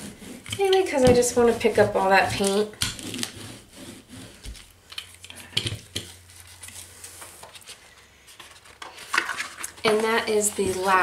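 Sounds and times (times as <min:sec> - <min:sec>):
brayer rolling over paper: 0:00.0 - 0:07.6, 0:09.6 - 0:11.0
paper rustling: 0:06.0 - 0:11.0.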